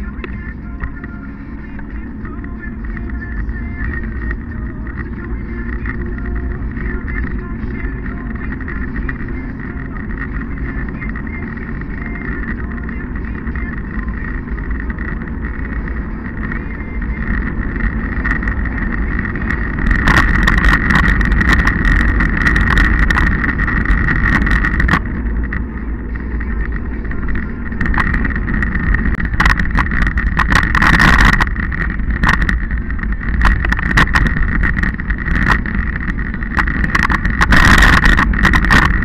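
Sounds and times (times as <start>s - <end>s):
road rumble: 0.0s - 39.0s
steady high whine: 0.0s - 39.0s
wind rushing over microphone: 0.0s - 39.0s.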